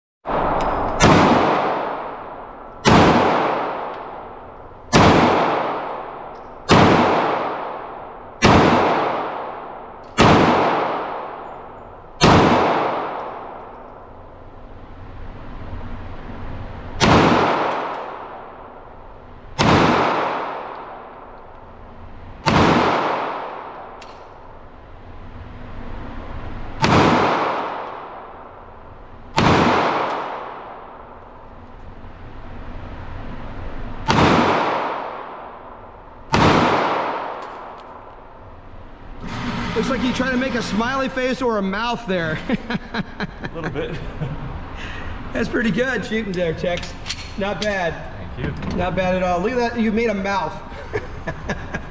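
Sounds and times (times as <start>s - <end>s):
gunshots echoing: 0.3s - 14.1s, 17.0s - 21.5s, 22.4s - 24.6s, 26.8s - 31.2s, 34.0s - 38.4s.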